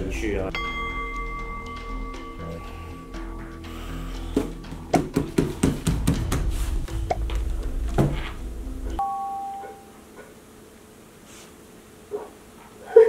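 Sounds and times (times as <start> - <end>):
dramatic background music: 0.0 - 9.0
sharp percussive hits: 0.5 - 9.8
two-note doorbell-like ding: 0.6 - 3.0, 9.0 - 10.0.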